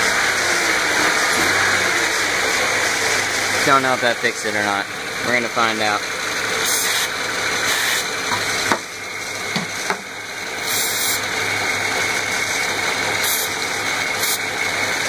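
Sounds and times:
car engine idling: 0:00.0 - 0:15.0
aerosol spray hisses: 0:10.7 - 0:11.2.

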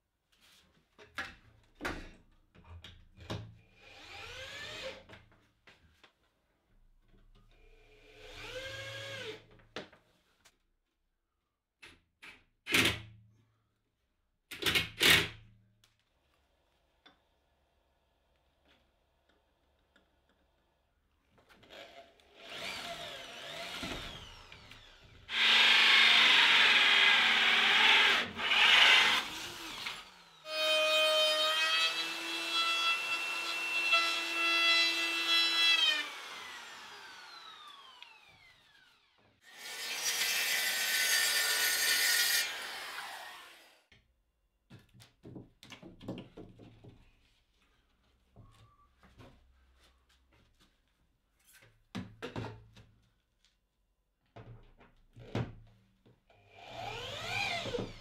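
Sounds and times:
electric saw cutting board: 0:22.4 - 0:43.8.

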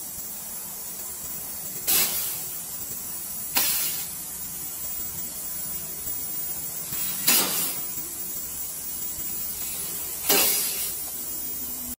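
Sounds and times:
faint steady gas hiss: 0:00.0 - 0:12.0
loud gas bursts: 0:01.8 - 0:02.6, 0:03.4 - 0:04.3, 0:06.9 - 0:08.0, 0:09.6 - 0:11.0.

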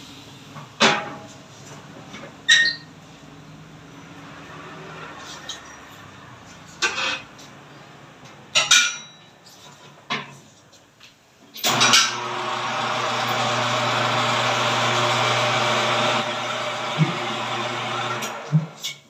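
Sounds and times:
tyre changer motor humming: 0:11.7 - 0:18.7.

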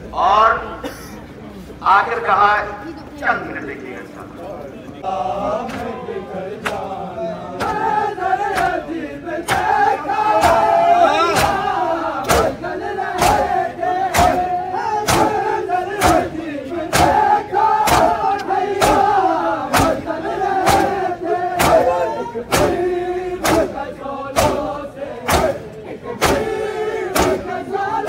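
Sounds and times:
men chanting in unison: 0:05.0 - 0:28.0
palms slapping chests: 0:09.4 - 0:14.5, 0:16.9 - 0:23.7.

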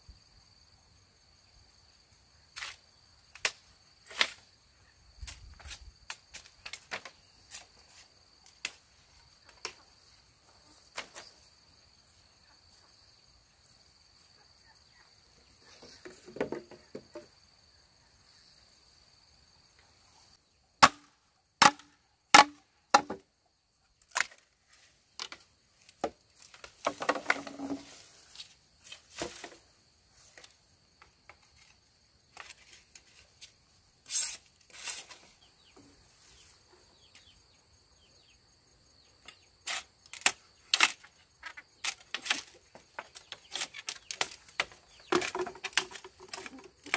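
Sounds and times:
high insect trill: 0:00.0 - 0:46.9
wood being struck: 0:20.8 - 0:23.2, 0:44.1 - 0:46.9.

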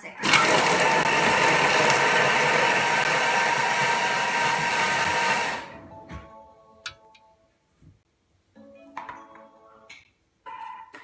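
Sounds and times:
food processor motor whir: 0:00.2 - 0:05.7.

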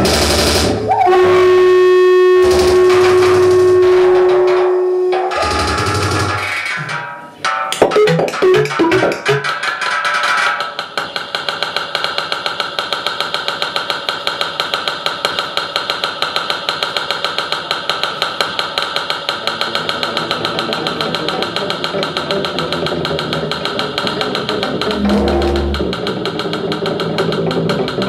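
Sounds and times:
buzzy pulsing synthesizer drone: 0:00.0 - 0:06.7, 0:19.5 - 0:27.0.

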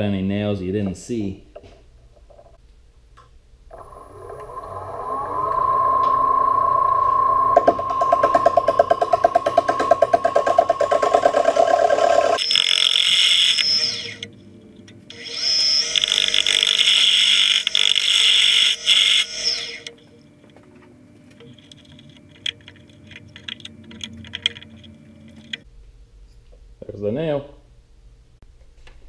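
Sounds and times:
low hum: 0:01.9 - 0:12.9
lathe tool cutting wood: 0:03.7 - 0:14.2, 0:15.1 - 0:19.9
high scraping screech: 0:03.8 - 0:14.3, 0:15.1 - 0:19.9
small clicks and scrapes: 0:21.3 - 0:25.7.

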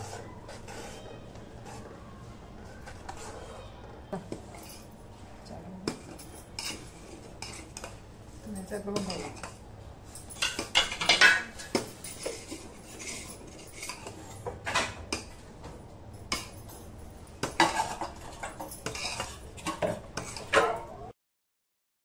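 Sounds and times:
ladle scraping metal pot: 0:00.0 - 0:02.0, 0:06.5 - 0:08.0, 0:10.4 - 0:15.0, 0:17.5 - 0:20.7.

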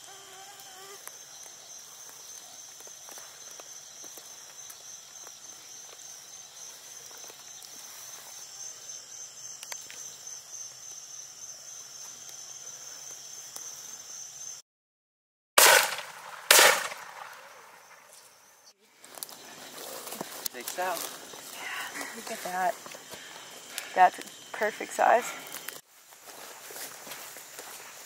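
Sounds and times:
night insects chirring: 0:00.0 - 0:14.6, 0:15.6 - 0:28.0
rifle shots: 0:15.6 - 0:17.8.

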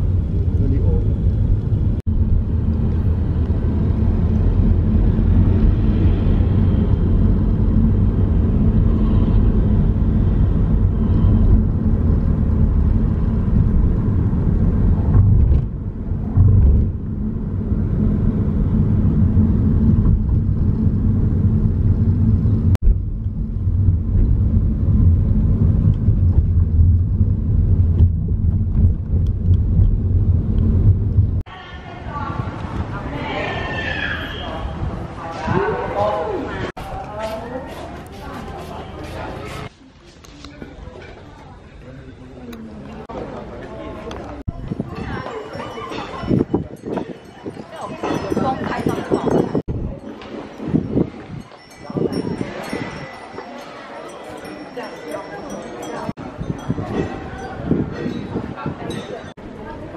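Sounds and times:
car engine and road noise: 0:00.0 - 0:31.5.

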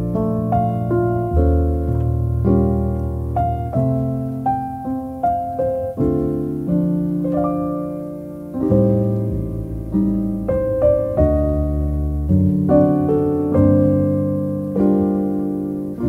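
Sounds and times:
solo piano: 0:00.0 - 0:16.0.

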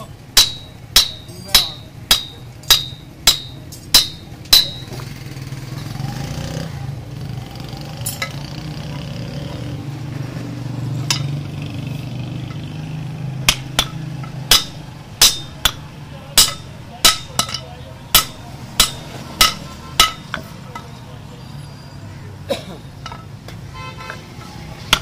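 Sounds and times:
hammer striking metal on anvil: 0:00.0 - 0:05.1, 0:11.0 - 0:11.4, 0:13.4 - 0:20.9.

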